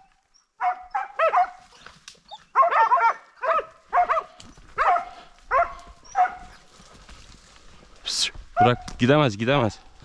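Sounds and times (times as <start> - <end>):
dogs barking: 0.6 - 6.7, 8.5 - 9.0.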